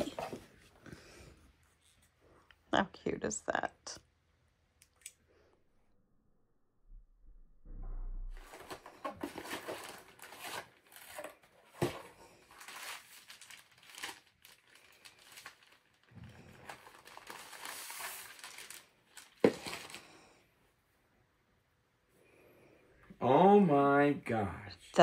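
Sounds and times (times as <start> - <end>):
packaging rustling and crinkling: 8.4 - 20.2.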